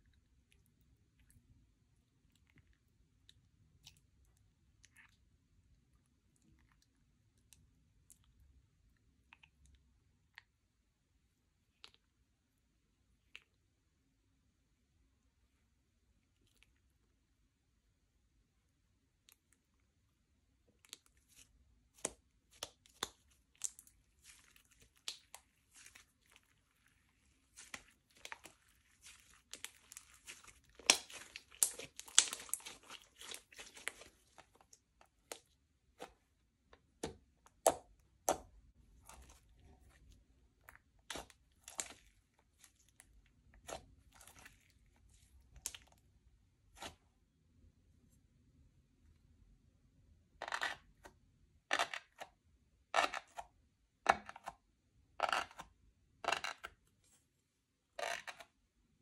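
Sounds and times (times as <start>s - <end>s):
slime crackling and popping: 20.9s - 35.5s.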